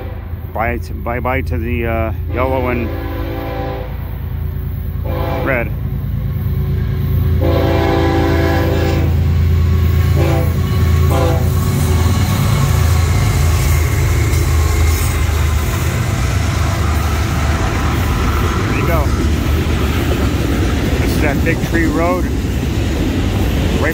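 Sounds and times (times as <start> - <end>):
locomotive horn blasts: 0.0 - 0.5, 2.3 - 4.2, 5.0 - 5.8, 7.4 - 9.3, 10.0 - 11.9
diesel locomotive engine drone: 0.0 - 23.9
freight cars rumbling over rails: 0.0 - 23.9.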